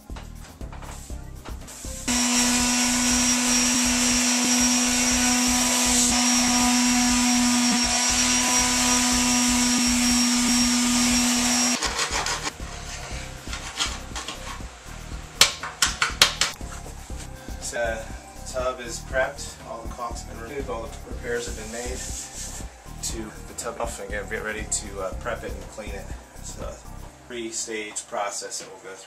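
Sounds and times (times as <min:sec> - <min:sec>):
electric motor tool humming: 0:02.1 - 0:14.8
handling noises: 0:13.4 - 0:14.6.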